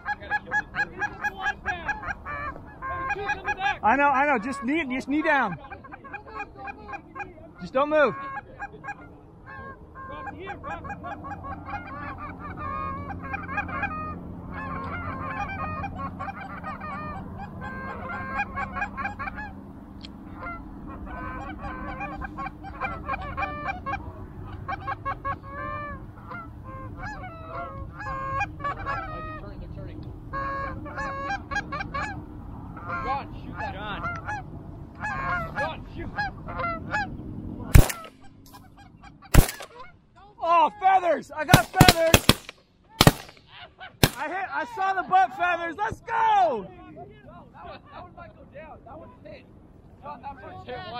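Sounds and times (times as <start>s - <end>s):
geese honking: 0.0s - 45.6s
shotgun shots: 37.8s - 38.2s, 39.3s - 39.8s, 41.5s - 43.4s, 44.0s - 44.3s.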